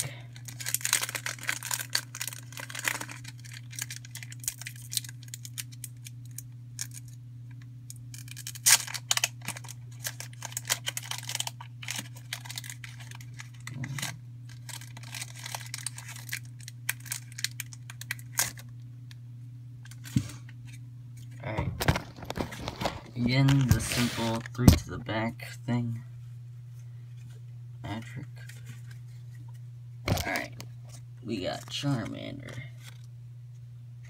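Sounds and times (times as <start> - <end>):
foil pack tearing and crinkling: 0.0 - 7.2, 8.0 - 18.7, 21.8 - 24.8.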